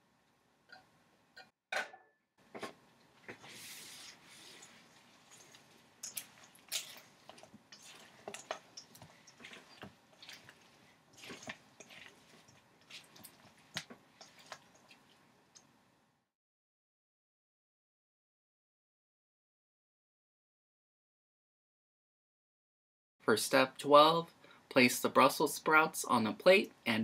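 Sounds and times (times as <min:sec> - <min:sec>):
spatula stirring wet food in bowl: 0:02.4 - 0:15.8.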